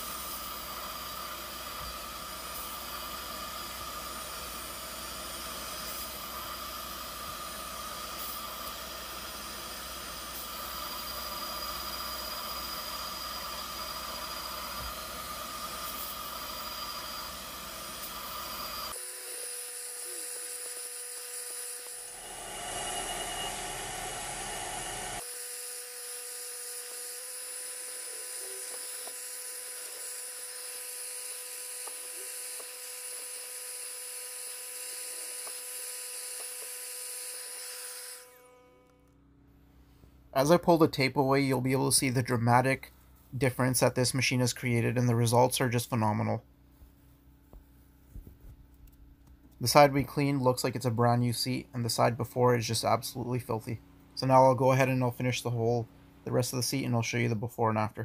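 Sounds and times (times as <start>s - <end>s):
carpet extractor motor whining: 0.0s - 36.8s.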